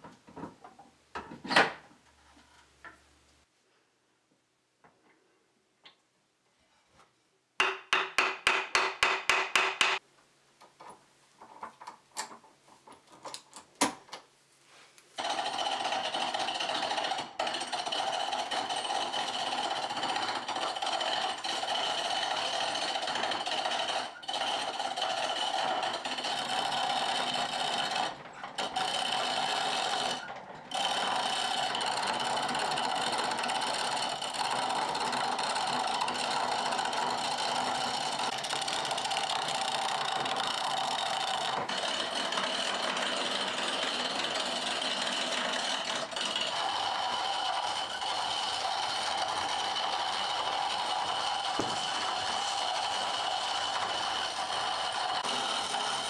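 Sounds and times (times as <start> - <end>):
turning tool scraping wood: 16.6 - 56.0.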